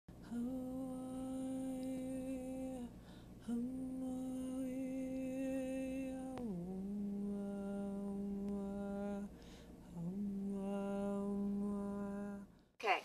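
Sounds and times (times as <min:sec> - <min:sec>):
person humming: 0:00.2 - 0:12.5
person breathing: 0:02.9 - 0:03.4, 0:09.3 - 0:09.8.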